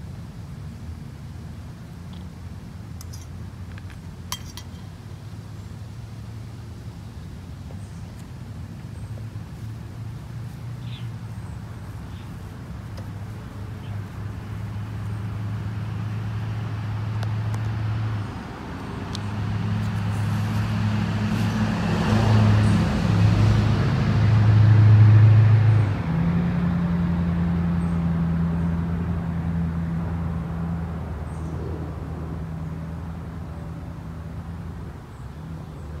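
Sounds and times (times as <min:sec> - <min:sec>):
traffic noise: 0:00.0 - 0:36.0
vehicle engine running: 0:07.6 - 0:34.9.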